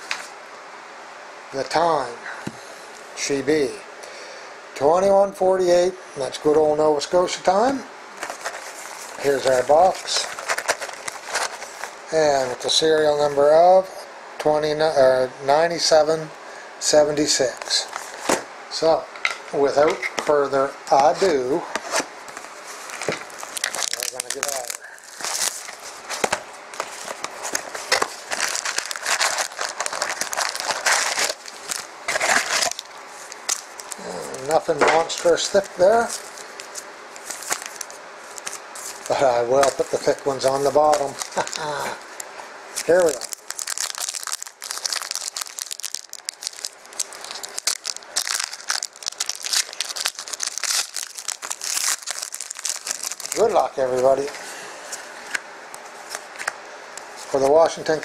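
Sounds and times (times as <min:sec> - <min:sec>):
foil card packs crinkling: 0:07.4 - 0:12.7, 0:21.0 - 0:58.0
plastic wrapper tearing: 0:08.2 - 0:12.0, 0:22.8 - 0:54.3.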